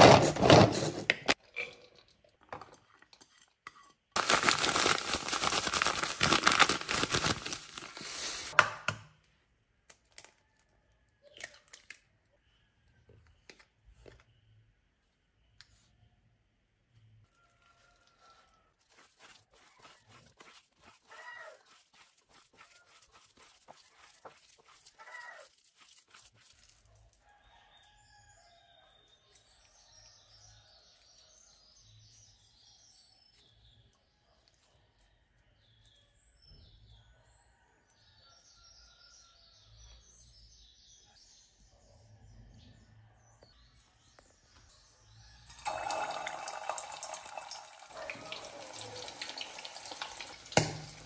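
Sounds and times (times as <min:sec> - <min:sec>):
hands squelching meat mixture: 0:17.4 - 0:27.8.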